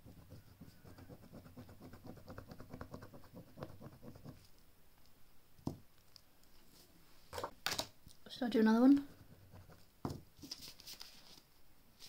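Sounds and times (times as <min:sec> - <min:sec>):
paper rustling and scratching: 0:10.4 - 0:12.0.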